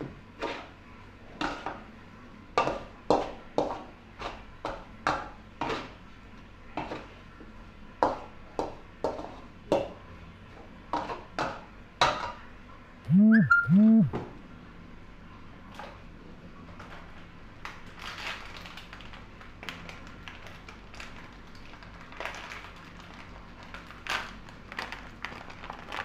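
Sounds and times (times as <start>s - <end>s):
loud short calls: 13.1s - 14.2s.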